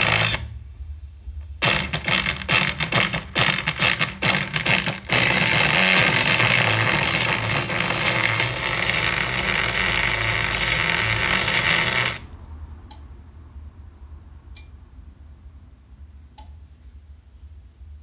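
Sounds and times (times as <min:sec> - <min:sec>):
distorted buzzing loudspeaker: 0:01.6 - 0:12.3
faint click: 0:16.4 - 0:16.6.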